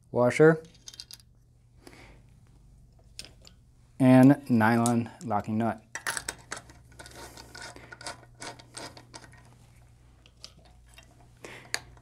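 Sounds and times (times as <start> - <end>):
nut threading scratches and clicks: 6.0 - 9.6.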